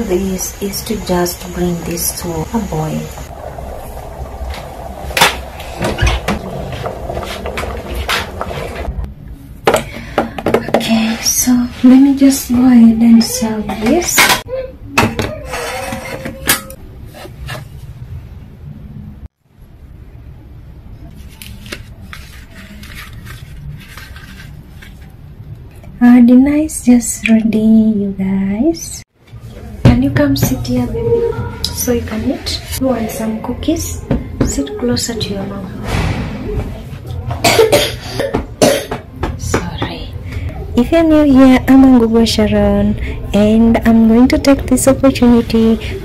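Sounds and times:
low steady rumble: 0.0 - 9.6, 40.0 - 46.0
cookware and utensils clattering: 13.6 - 16.8
low steady hum: 22.8 - 46.0.

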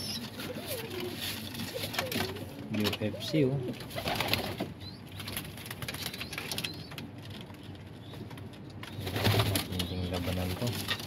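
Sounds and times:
pigeon cooing: 0.0 - 4.4
pigeons scuffling: 0.0 - 11.0.

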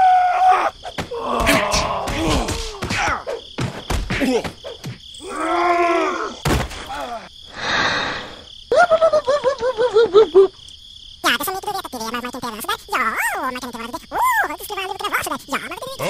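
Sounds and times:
comic thuds: 0.8 - 5.1, 6.4 - 7.1
squeaky cartoon voices: 11.2 - 16.0.

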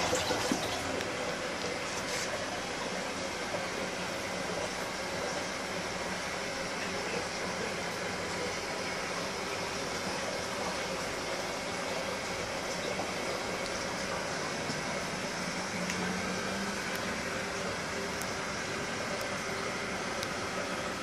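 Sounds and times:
aquarium bubbling: 0.0 - 21.0.

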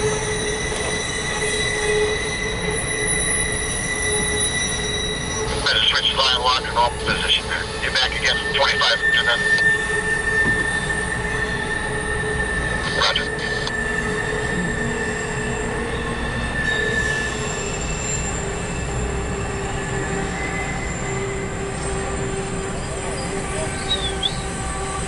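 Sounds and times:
train rumble: 0.0 - 25.0
train wheels squealing: 0.0 - 25.0
train clatter: 3.6 - 11.5.

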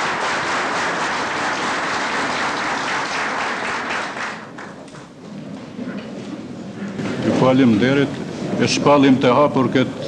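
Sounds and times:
crowd applauding: 0.0 - 4.9.

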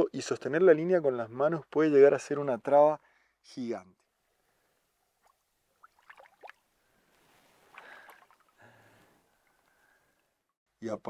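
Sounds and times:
river water dripping and splashing: 5.1 - 10.3.

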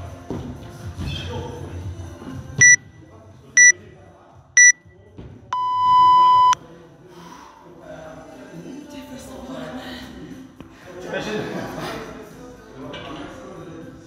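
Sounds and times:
longer lower beep: 4.6 - 4.8, 5.6 - 6.6
short high beeps: 4.6 - 4.8, 5.6 - 6.6.

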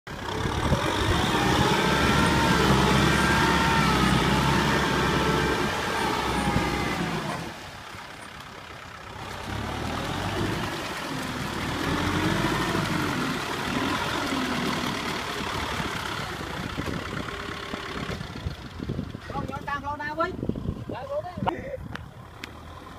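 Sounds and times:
tractor diesel engine revving: 0.1 - 20.8.

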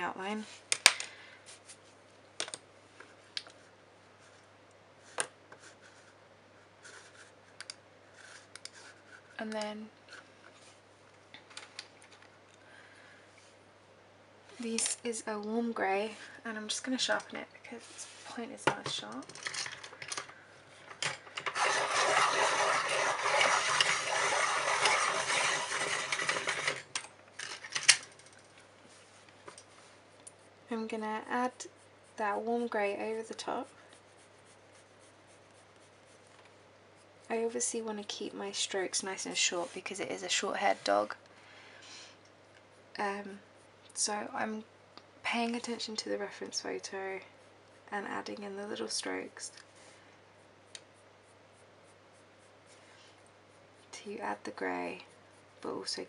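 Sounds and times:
faint room hiss: 0.0 - 56.0
pencils clicking on desk: 18.8 - 28.4.

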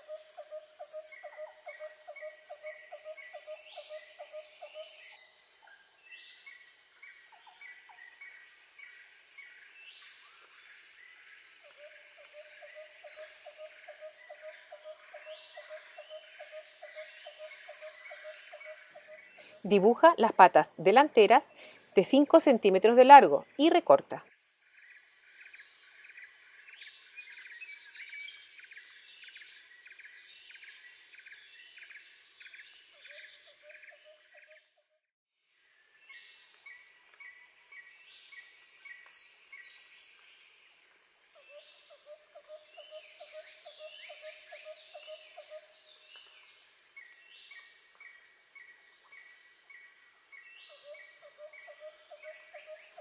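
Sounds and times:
insect chirping: 0.0 - 53.0
birds chirping and calling: 14.2 - 20.0.

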